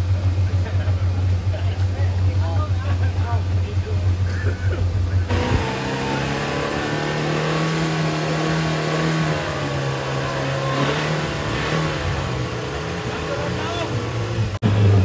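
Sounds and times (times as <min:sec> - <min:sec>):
engine running at raised revs: 0:00.0 - 0:15.0.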